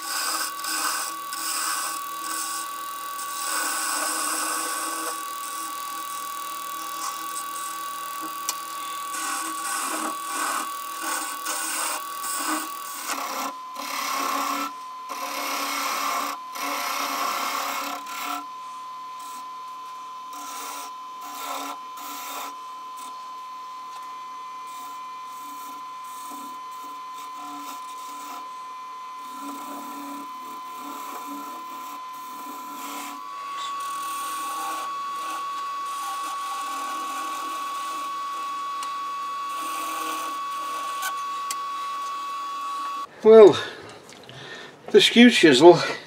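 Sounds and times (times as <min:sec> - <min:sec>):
tool scraping wood: 0:00.0 - 0:18.5, 0:20.3 - 0:23.2, 0:23.9 - 0:28.5, 0:29.2 - 0:43.7
wood lathe whining: 0:00.0 - 0:43.7.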